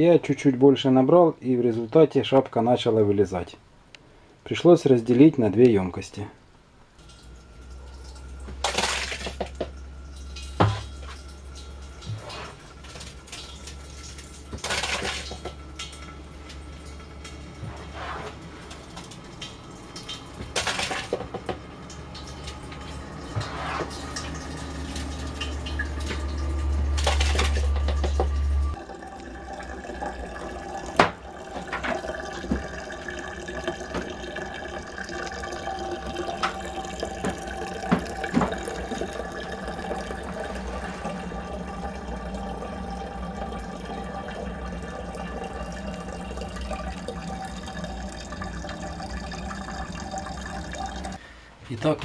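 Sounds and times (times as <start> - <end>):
wine trickling into bottle: 7.0 - 51.2
loud low hum: 21.5 - 29.8.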